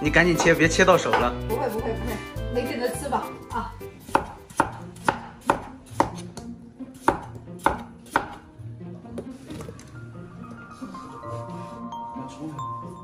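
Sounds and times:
cleaver chopping on wooden board: 4.1s - 6.3s, 7.0s - 8.4s.

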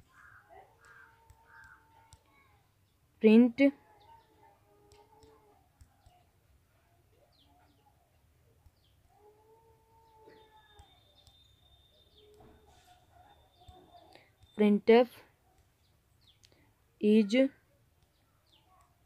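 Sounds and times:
drawn-out faint calls: 0.0s - 2.6s
faint chirps: 8.7s - 14.8s.

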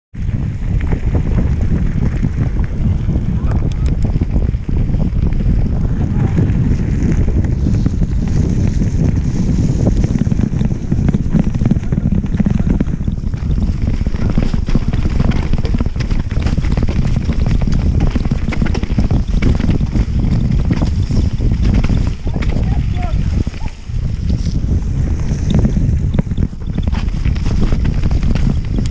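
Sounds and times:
wind buffeting microphone: 0.1s - 28.9s
bike rattling over stones: 0.2s - 28.9s.

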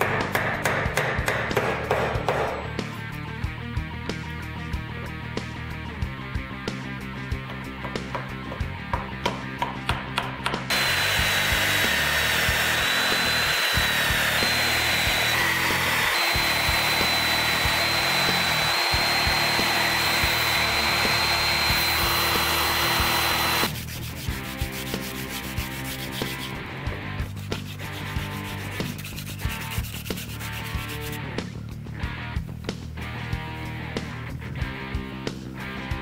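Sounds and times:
background music: 0.0s - 36.0s
belt sander grinding wood: 10.7s - 26.6s, 27.6s - 31.3s
hand sanding strokes: 10.7s - 31.3s.

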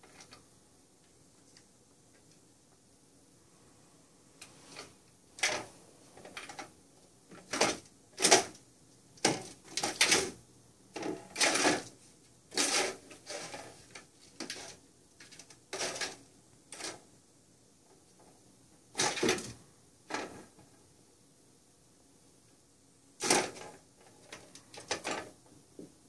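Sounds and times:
plastic cat toy rattling: 11.0s - 17.0s, 23.2s - 25.4s.

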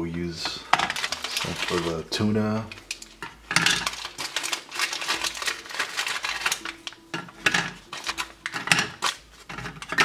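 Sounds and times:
foil packet crinkling: 0.6s - 10.0s
biscuits clicking on metal tray: 2.8s - 10.0s.

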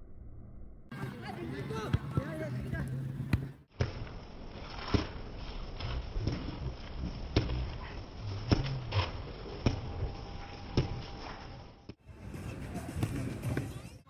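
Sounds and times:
faint low rumble: 0.0s - 0.9s.

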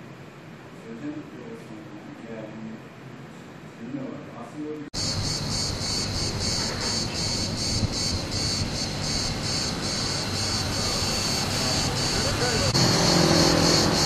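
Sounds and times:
low rumble of street noise: 0.0s - 14.0s
insects singing in pulsing chorus: 5.0s - 14.0s.

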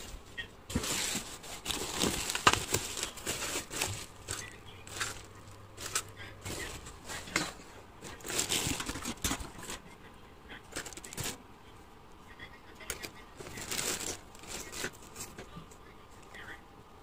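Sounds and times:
plastic and bubble wrap crinkling: 0.0s - 9.9s, 10.6s - 11.4s, 12.8s - 15.6s.

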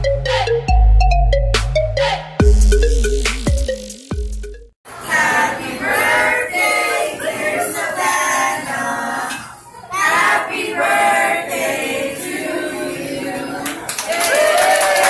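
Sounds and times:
group of voices singing a birthday tune: 4.9s - 13.9s.

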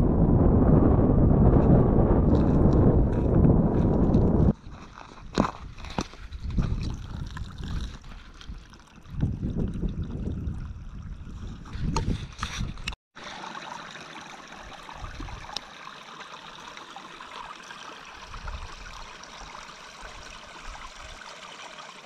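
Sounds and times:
low rumbling: 0.0s - 4.6s
stream trickling over stones: 4.7s - 12.6s, 13.2s - 22.0s.

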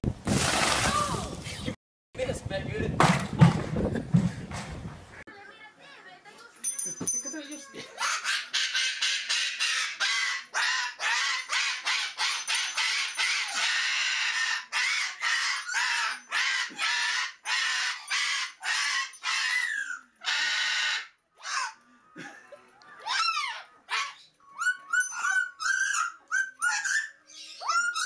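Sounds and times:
cockatoo screeching: 8.0s - 21.8s, 23.0s - 28.0s.

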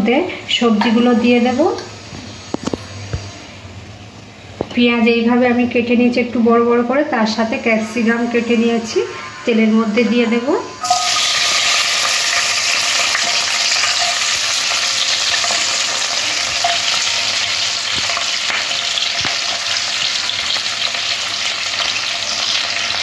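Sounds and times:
vegetables sizzling in hot oil: 10.8s - 23.0s.

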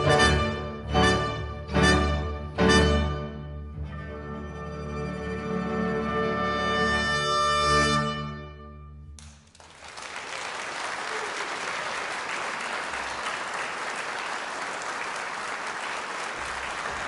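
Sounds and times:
orchestra low chord: 0.0s - 9.2s
audience applause: 9.2s - 17.0s.

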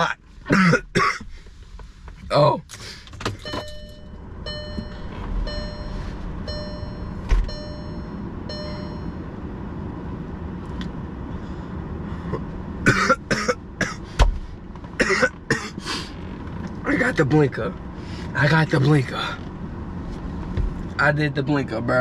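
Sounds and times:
steady low hum: 0.0s - 21.0s
person coughing harshly: 0.5s - 1.2s, 12.8s - 14.1s, 15.0s - 15.8s.

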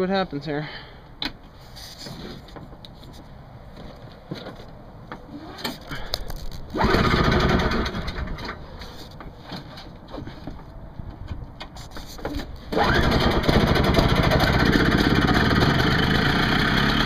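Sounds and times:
snowblower engine starting: 6.7s - 8.6s, 12.7s - 17.0s.

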